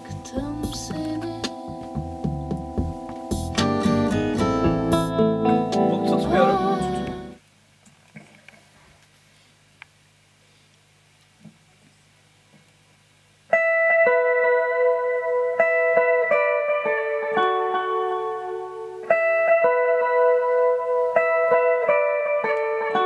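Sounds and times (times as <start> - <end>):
electric guitar arpeggio: 0.0 - 7.4, 13.5 - 23.0
low steady hum: 0.0 - 22.3.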